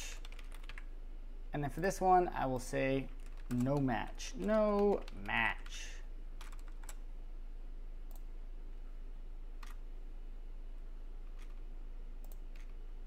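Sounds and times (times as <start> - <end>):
steady low hum: 0.0 - 13.0
computer mouse clicks: 12.2 - 12.8.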